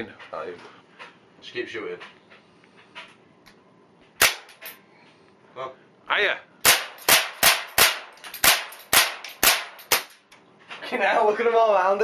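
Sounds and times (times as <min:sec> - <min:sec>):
air pistol shots: 0:04.2 - 0:04.8, 0:06.6 - 0:10.3
pellets hitting metal-backed target: 0:04.2 - 0:04.8, 0:06.6 - 0:10.2.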